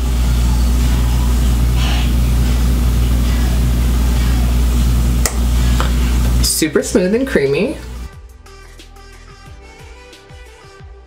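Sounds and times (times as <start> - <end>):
loud low hum: 0.0 - 8.1.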